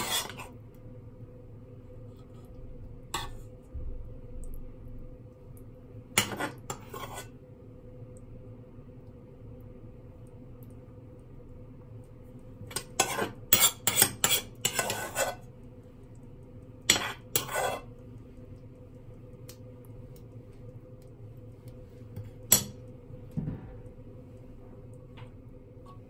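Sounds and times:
metal spoon scraping frying pan: 0.0 - 0.6, 3.1 - 3.4, 6.2 - 7.4, 12.7 - 15.5, 16.9 - 17.9
steady low hum: 0.0 - 26.0.

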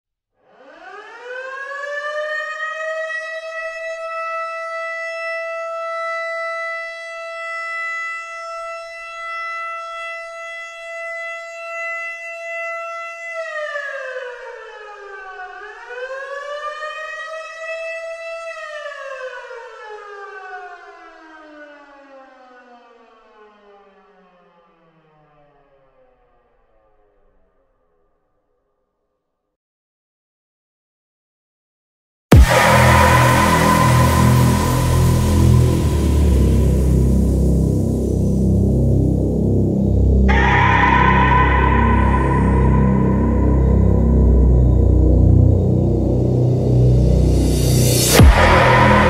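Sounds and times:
siren wailing: 0.5 - 24.8, 32.3 - 49.0.

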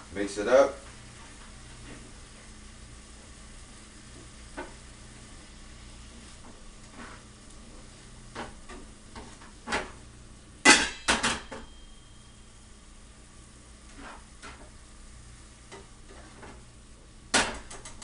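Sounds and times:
faint sizzle: 0.0 - 10.7, 11.5 - 18.0
utensil scraping a frying pan: 5.9 - 10.0, 13.8 - 14.7, 15.7 - 16.6.

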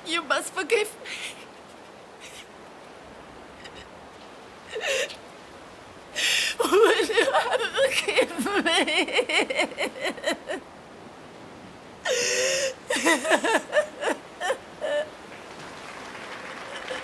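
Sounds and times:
woman sobbing: 2.2 - 2.5, 4.7 - 5.2, 6.2 - 10.6, 12.0 - 15.2, 16.7 - 17.0.

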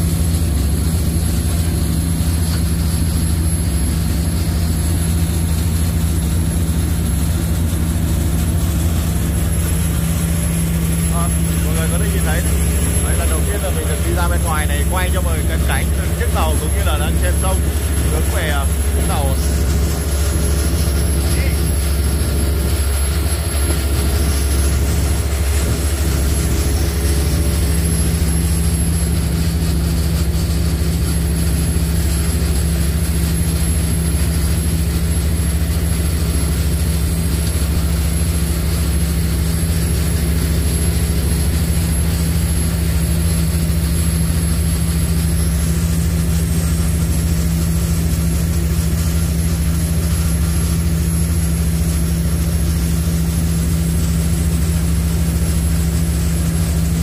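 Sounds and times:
ferry engines droning: 0.0 - 47.1
thin high whine: 1.2 - 36.6.

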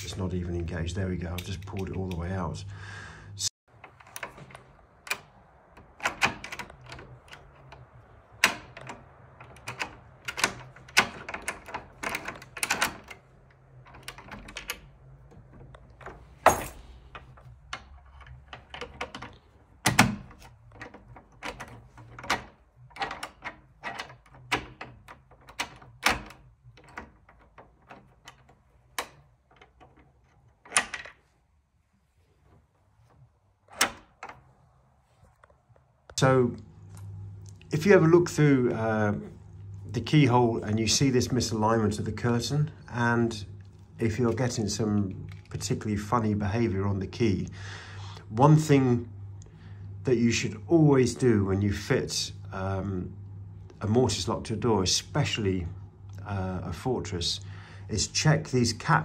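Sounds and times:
door lock clicking and clunking: 3.7 - 31.3, 33.1 - 34.6.

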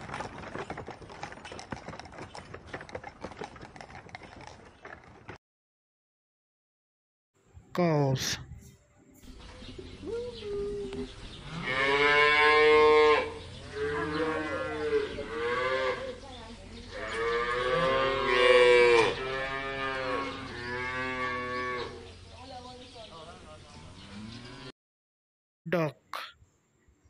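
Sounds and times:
cattle mooing: 11.5 - 16.1, 17.0 - 22.0.

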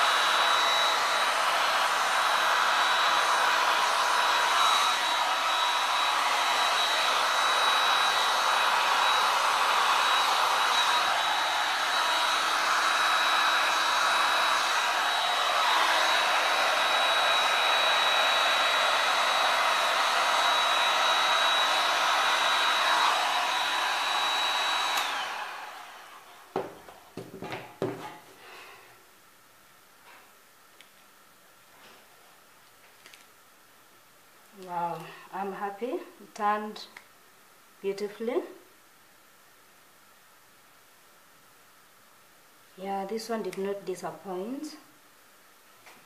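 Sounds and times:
heat gun blowing: 0.0 - 28.9.

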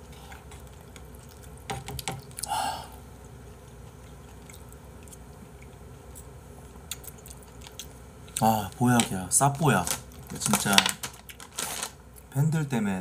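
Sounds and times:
soft chewing: 0.0 - 9.2.

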